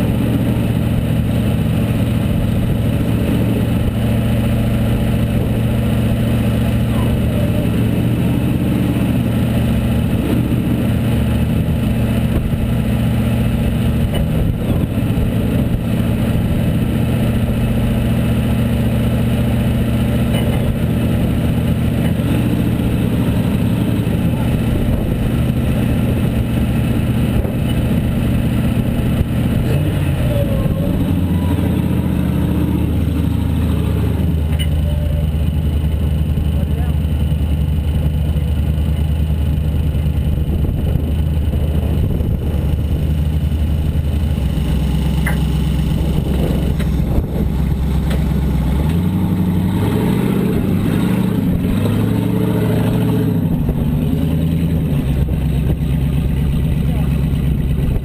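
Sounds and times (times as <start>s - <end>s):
engine running at low revs: 0.0s - 58.0s.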